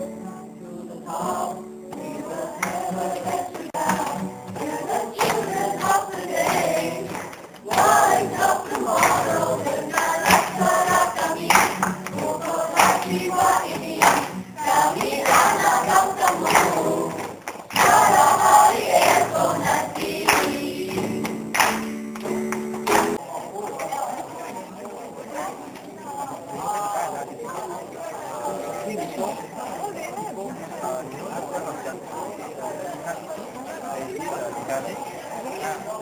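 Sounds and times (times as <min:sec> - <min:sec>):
choir singing: 0:00.0 - 0:23.2
sharp claps: 0:02.6 - 0:23.2.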